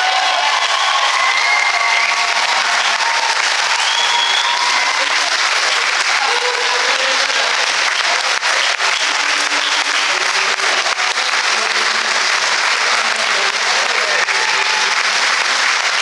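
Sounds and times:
crowd applauding: 0:00.0 - 0:16.0.

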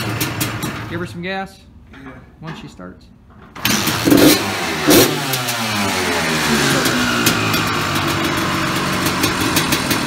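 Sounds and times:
dirt bike engine starting and revving: 0:00.0 - 0:01.0, 0:03.5 - 0:10.0.

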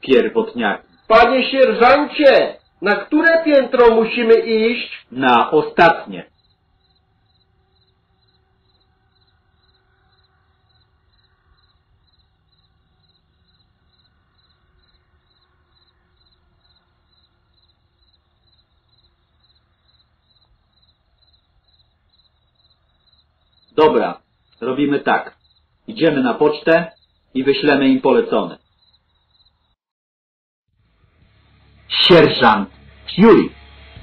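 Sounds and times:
faint cricket chirping: 0:00.1 - 0:29.8.

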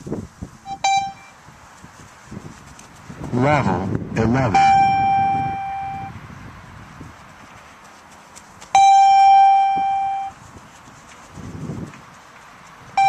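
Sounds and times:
electronic beeps: 0:00.7 - 0:01.4, 0:04.6 - 0:06.1, 0:08.8 - 0:10.3.

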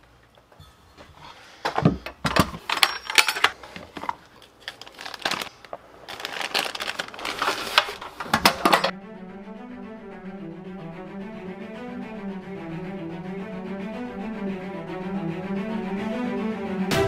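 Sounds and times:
small metal parts clinking: 0:02.6 - 0:07.8
plastic bag crinkling: 0:02.6 - 0:08.4
music with low bowed strings: 0:08.9 - 0:17.0.

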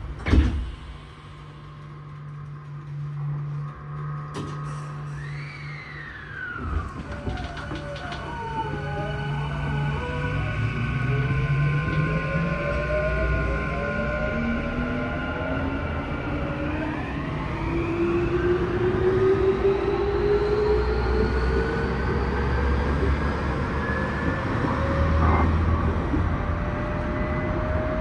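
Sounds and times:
wheels rumbling on rail: 0:00.0 - 0:28.0.

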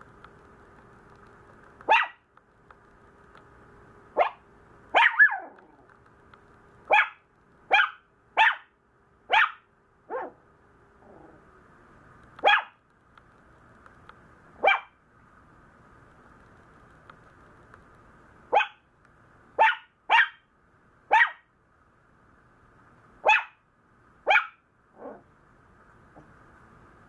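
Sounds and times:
puppy barking: 0:01.8 - 0:02.3, 0:04.2 - 0:05.8, 0:06.9 - 0:10.4, 0:12.4 - 0:12.8, 0:14.6 - 0:15.0, 0:18.5 - 0:18.8, 0:19.6 - 0:20.5, 0:21.1 - 0:21.5, 0:23.2 - 0:23.6, 0:24.2 - 0:25.3.

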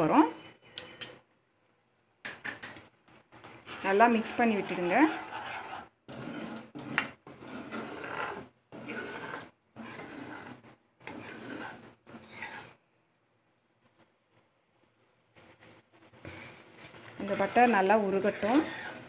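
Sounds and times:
spoon scraping a pan: 0:02.4 - 0:12.8, 0:15.4 - 0:19.0.

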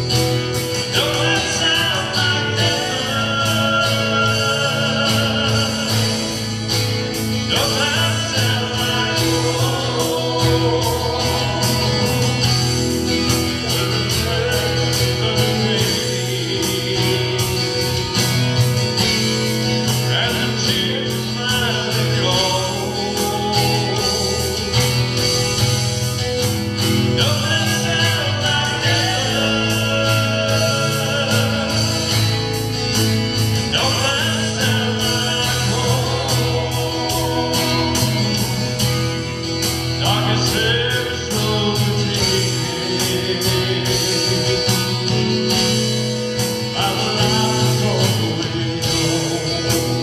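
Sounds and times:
man singing gospel song: 0:00.0 - 0:50.0
strummed acoustic guitar: 0:00.0 - 0:50.0.

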